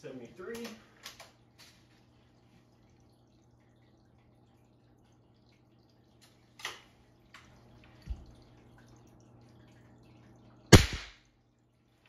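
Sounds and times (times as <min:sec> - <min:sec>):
air rifle firing crack: 0:10.7 - 0:11.2.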